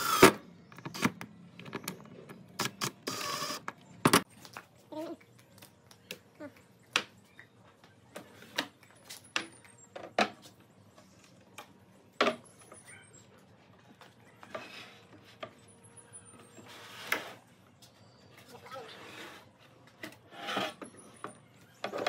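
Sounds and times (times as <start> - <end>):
wooden frame scraping on bench: 18.9 - 21.0.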